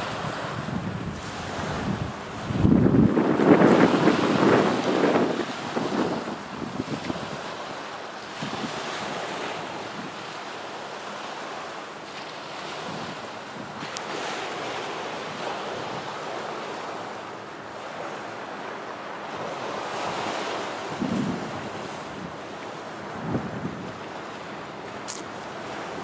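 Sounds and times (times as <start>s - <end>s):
wind on microphone: 0.0s - 10.3s, 12.4s - 17.0s, 19.3s - 24.4s
waves on pebble beach: 0.0s - 26.0s.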